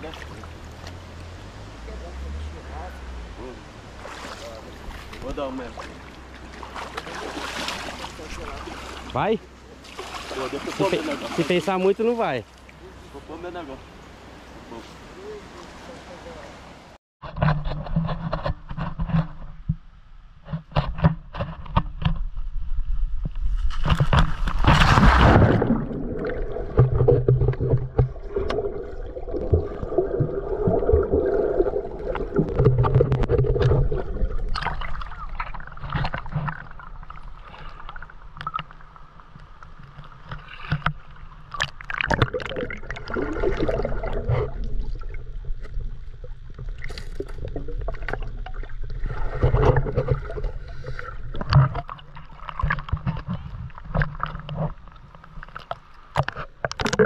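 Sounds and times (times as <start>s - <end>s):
sharp underwater clicks and knocks: 17.2s - 25.6s, 26.2s - 43.2s, 44.0s - 57.0s
muffled underwater river gurgling: 24.5s - 57.0s.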